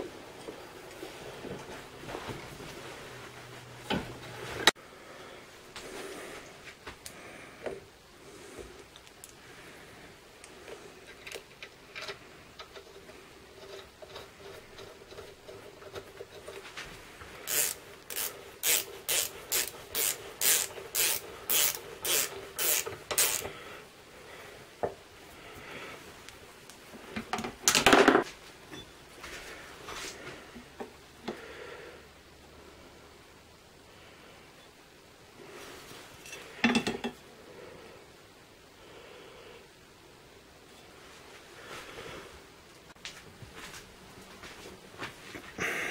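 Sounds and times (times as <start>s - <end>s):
quiet handling sounds: 0.0s - 4.8s, 5.5s - 18.6s
wrench ratcheting: 17.5s - 23.5s.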